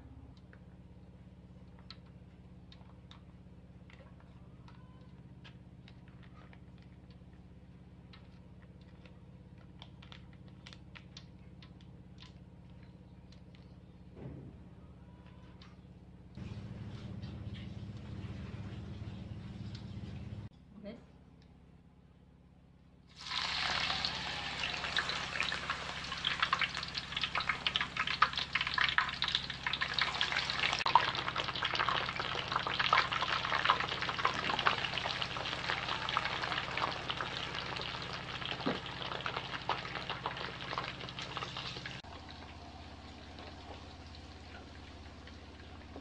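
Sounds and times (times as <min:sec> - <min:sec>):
slices sizzling in hot oil: 0:23.2 - 0:42.0.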